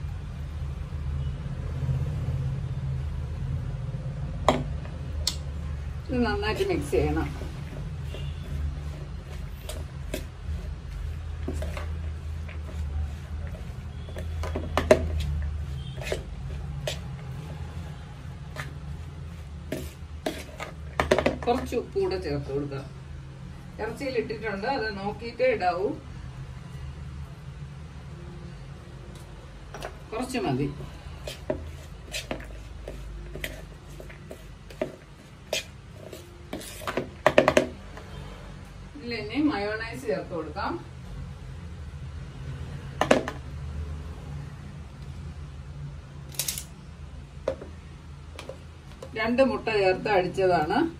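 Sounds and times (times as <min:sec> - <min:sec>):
spoon stirring stuffing: 0:06.2 - 0:21.9, 0:29.2 - 0:38.0
spoon tapping and scraping bowl: 0:11.4 - 0:17.6, 0:19.7 - 0:21.7, 0:31.3 - 0:37.8.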